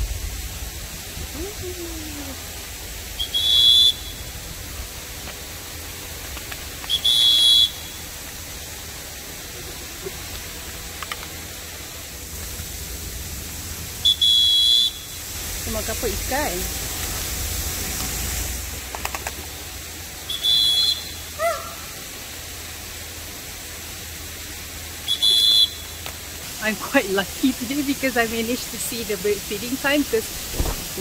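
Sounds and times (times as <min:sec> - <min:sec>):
high whistle-like tones: 0:03.2 - 0:04.3
low background hiss: 0:22.4 - 0:31.0.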